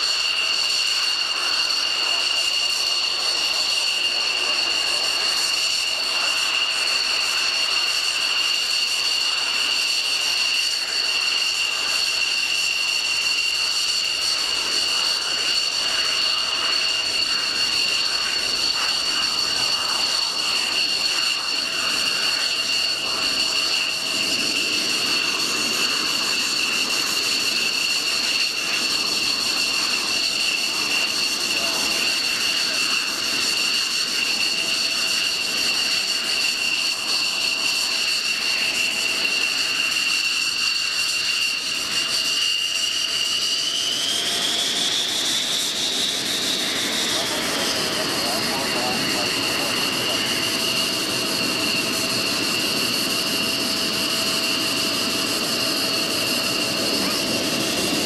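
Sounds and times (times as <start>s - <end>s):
high-pitched turbine whine: 0.0s - 58.0s
rushing jet noise: 0.0s - 58.0s.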